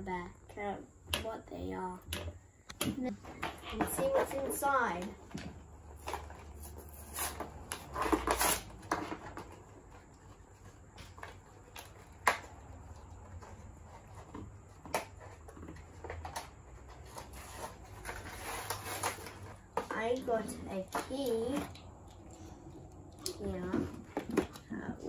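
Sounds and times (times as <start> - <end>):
sharp plastic snaps and clicks: 2.0 - 3.1, 20.9 - 23.5
packaging rustling and crinkling: 13.2 - 20.1.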